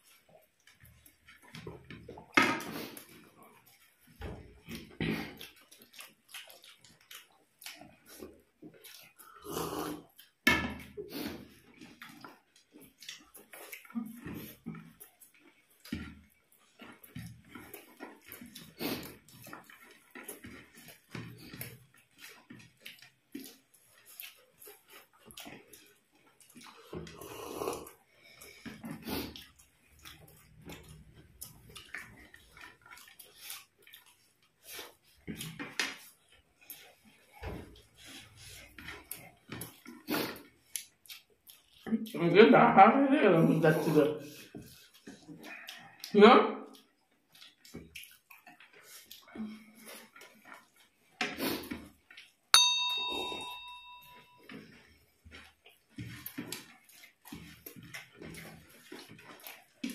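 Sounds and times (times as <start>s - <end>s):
crunching chewing: 0.0s - 42.2s, 43.8s - 52.5s, 53.6s - 59.9s
eating handling noises: 0.0s - 42.2s, 43.4s - 59.9s
glassware clink ringing: 52.6s - 54.4s.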